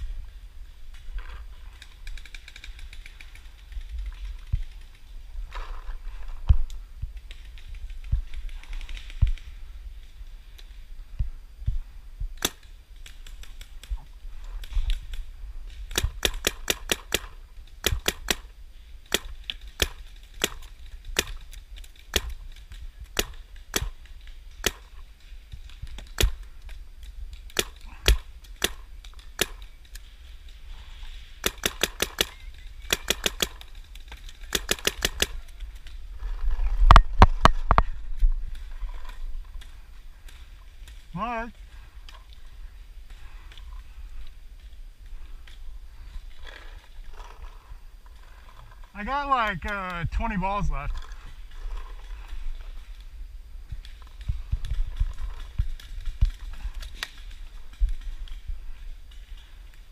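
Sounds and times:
paintball markers firing: 15.8 - 30.1, 31.2 - 36.0.

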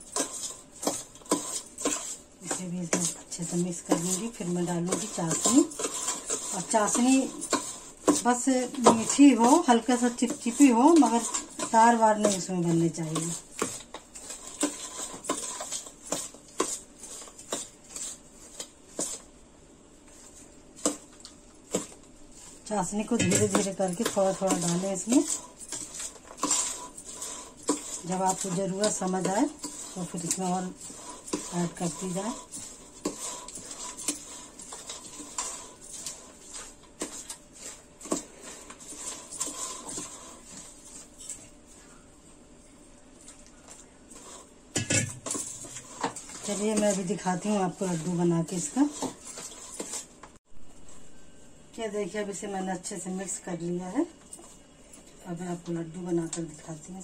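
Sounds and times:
spoon scraping metal bowl: 0.0 - 19.3, 21.7 - 41.6, 44.1 - 50.1.

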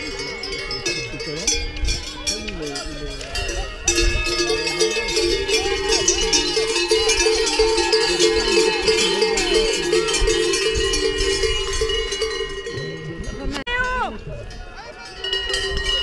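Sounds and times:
cowbells ringing: 0.0 - 16.0
people shouting: 4.3 - 12.4.

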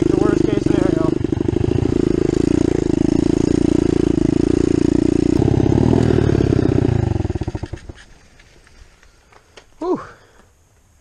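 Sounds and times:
motorbike engine running: 0.0 - 8.1.

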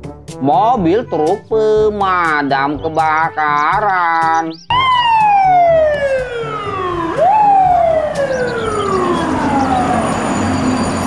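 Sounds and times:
fire truck siren: 4.7 - 11.0.

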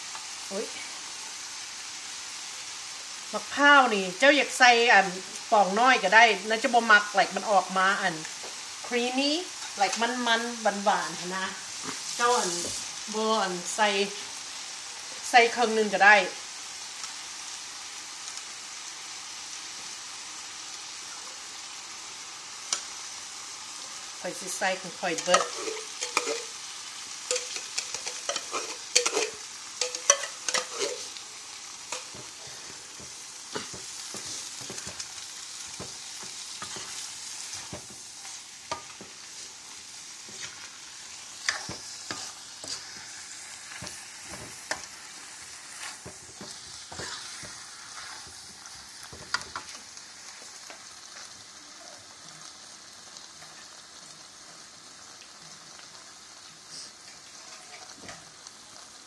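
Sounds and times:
food sizzling in a pan: 0.0 - 59.0
spatula clacking and scraping pan: 25.2 - 26.6, 27.2 - 31.2, 31.9 - 39.4, 40.2 - 40.7, 41.4 - 45.0, 45.7 - 49.8.

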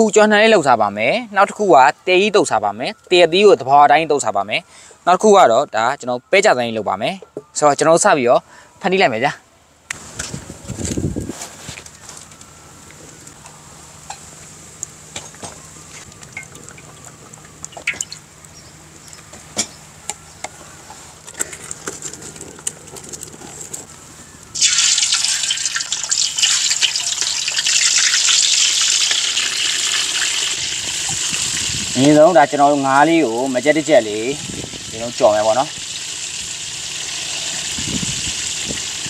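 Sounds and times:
fish sizzling in hot oil: 24.6 - 32.0, 33.8 - 39.0.

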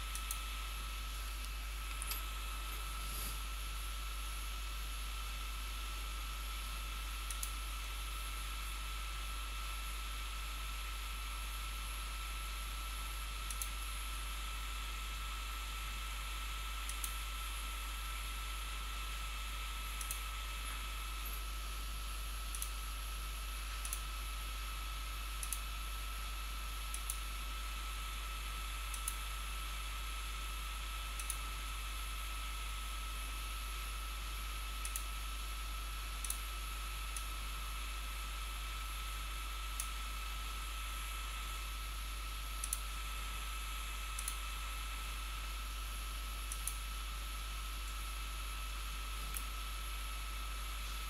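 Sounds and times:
computer mouse clicking: 0.1 - 0.4, 1.4 - 3.4, 7.2 - 7.6, 13.5 - 13.8, 16.8 - 17.2, 20.0 - 21.4, 22.5 - 22.8, 23.8 - 24.1, 25.4 - 25.7, 26.9 - 27.2, 28.9 - 29.2, 31.2 - 31.5, 34.8 - 35.2, 36.2 - 36.5, 37.1 - 37.4, 39.7 - 40.0, 42.6 - 43.0, 44.1 - 44.5, 46.5 - 46.9, 49.2 - 49.6.

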